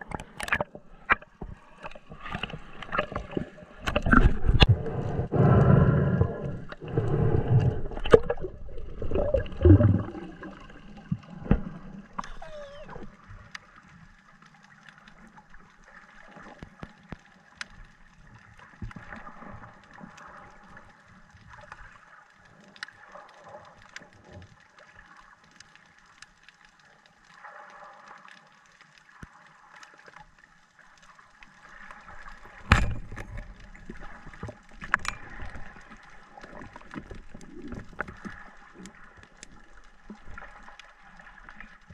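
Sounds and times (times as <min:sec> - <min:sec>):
faint clicks underwater: 0:00.0 - 0:41.9
loud low underwater noise: 0:03.7 - 0:13.1.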